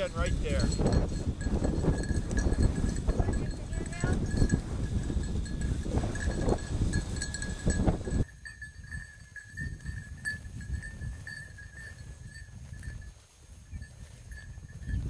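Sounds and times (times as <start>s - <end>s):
thin high ringing tone: 0.0s - 15.0s
wind on microphone: 0.0s - 15.0s
brush rustling under feet: 9.6s - 15.0s.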